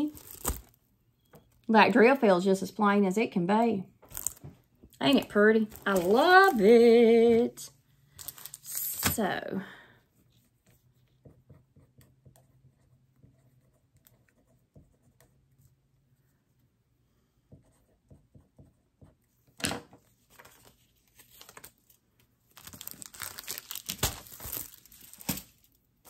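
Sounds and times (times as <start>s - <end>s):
plastic packaging rustling: 0.0s - 0.8s, 4.1s - 6.8s, 8.2s - 9.2s, 20.4s - 25.7s.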